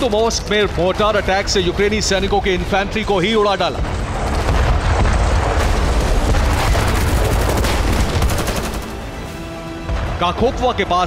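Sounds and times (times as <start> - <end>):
rumble of explosions: 0.0 - 9.3
rapid gunfire: 3.9 - 9.2.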